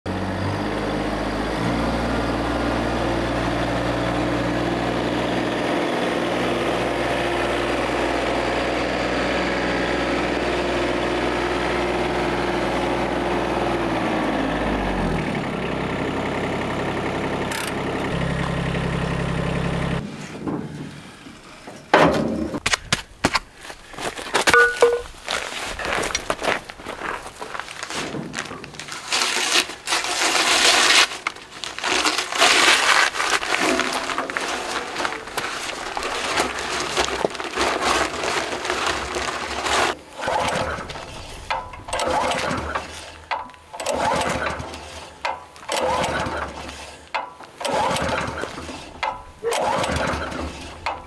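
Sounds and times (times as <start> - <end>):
tractor engine running: 0.1 - 22.7, 23.9 - 51.0
knocks and clatter: 21.6 - 23.4, 33.4 - 51.0.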